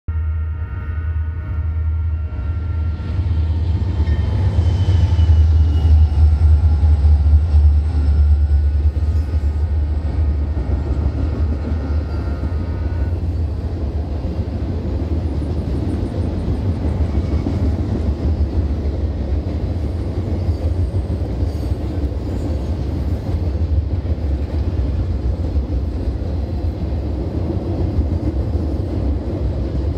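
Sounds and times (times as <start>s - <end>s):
high ringing tones: 0.1s - 6.7s
freight train rolling on rails: 0.1s - 29.9s.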